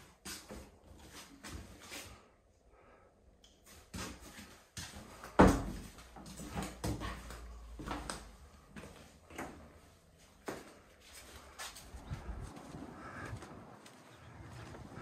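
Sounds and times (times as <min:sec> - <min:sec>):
footsteps: 0:03.6 - 0:15.0.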